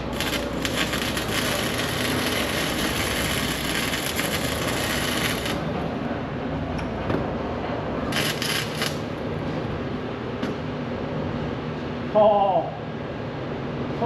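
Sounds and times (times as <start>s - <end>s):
arc welding crackle: 0.0s - 5.8s, 8.0s - 9.3s.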